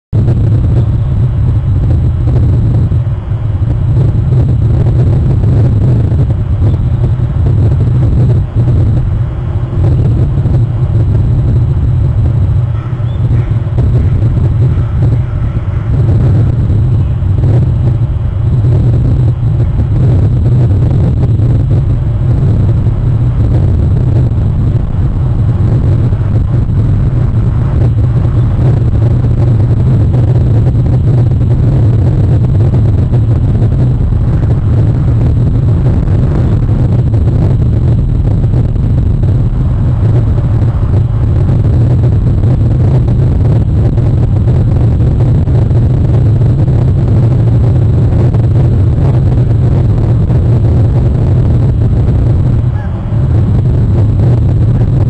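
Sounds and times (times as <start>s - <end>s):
wind buffeting microphone: 0.1s - 55.0s.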